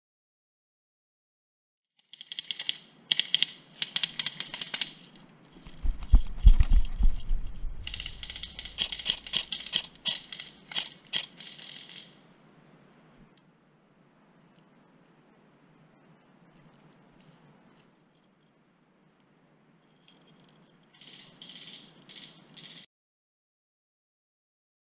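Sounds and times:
heavy low thumps: 5.7s - 8.3s.

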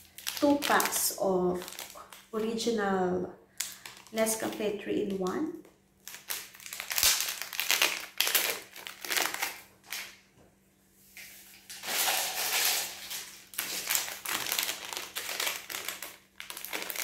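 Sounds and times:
foil packets crinkling: 0.0s - 2.6s, 3.6s - 4.7s, 6.0s - 10.1s, 11.7s - 17.0s.

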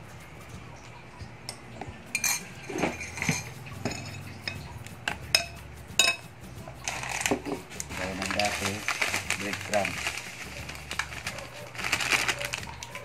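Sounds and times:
spoon clinking against glass bowl: 1.5s - 7.6s
fish stirred in wet batter: 6.8s - 13.0s.

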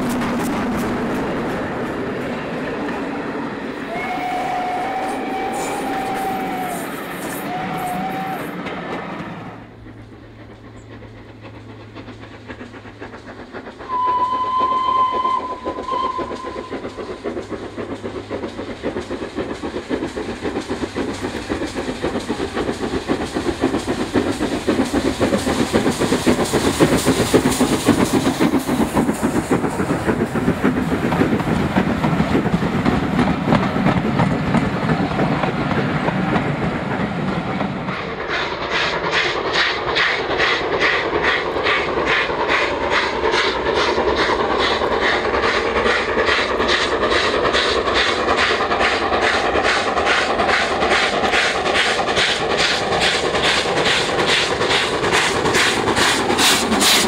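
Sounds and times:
steam locomotive exhaust beat: 0.0s - 57.0s
steam locomotive whistle: 3.8s - 8.6s, 13.9s - 17.0s.

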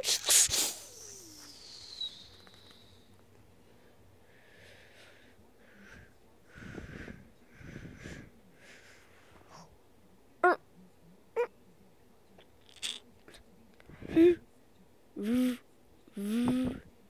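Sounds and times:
raspy wheezy breaths: 3.6s - 9.7s.

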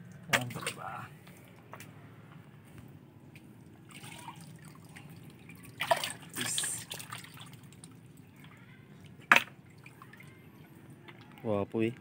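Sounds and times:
water sloshing and dripping: 0.0s - 1.8s, 3.2s - 11.9s
water splash: 5.6s - 7.5s.

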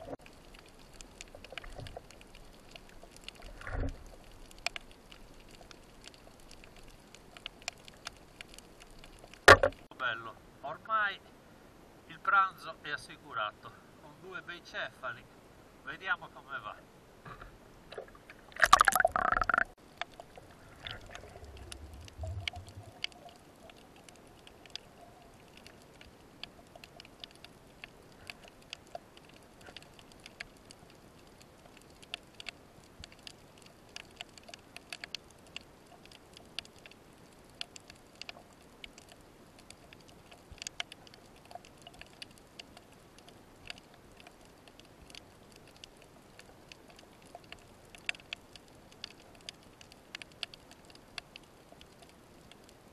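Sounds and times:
underwater clicks and crackles: 0.0s - 9.9s, 17.3s - 52.9s
low underwater rumble: 18.0s - 23.7s.

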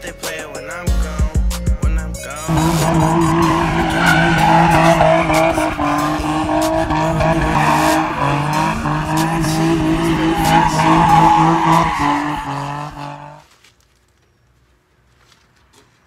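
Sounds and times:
car engine at high revs: 2.5s - 13.4s
tyres skidding on dirt: 2.5s - 13.5s.

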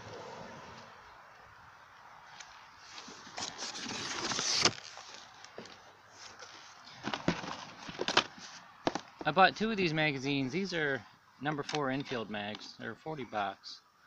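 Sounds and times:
cardboard box rustling and scraping: 2.8s - 5.4s, 6.2s - 9.0s.

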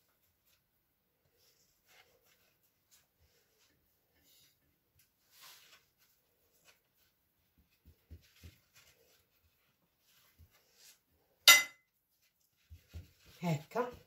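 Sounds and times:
hands rolling pastry: 0.0s - 14.0s
sharp clink with ring: 11.5s - 11.8s.

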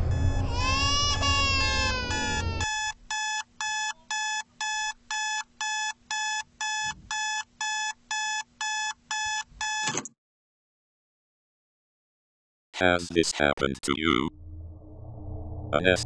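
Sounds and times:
digital alarm clock beeping: 0.0s - 0.5s, 1.7s - 9.9s
loud falling crying wail: 0.0s - 2.8s.

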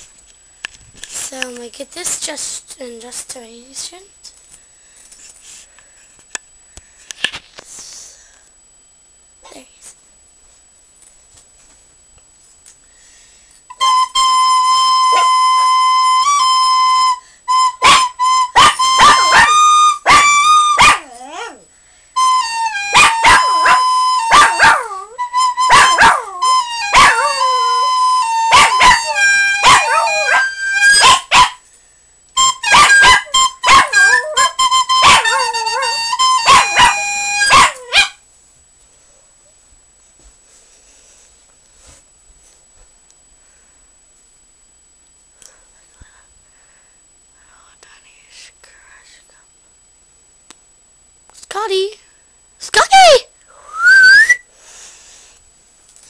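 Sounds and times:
flute long notes: 13.7s - 20.8s, 22.2s - 31.0s, 32.4s - 37.6s, 53.6s - 54.4s
small dog barking: 17.8s - 21.6s, 22.9s - 25.0s, 25.7s - 26.3s, 26.9s - 27.4s, 28.5s - 31.6s, 32.7s - 38.2s.

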